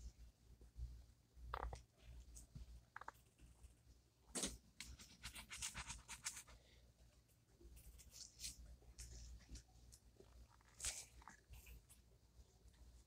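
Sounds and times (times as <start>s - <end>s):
pen scratching on paper: 5.0s - 6.5s.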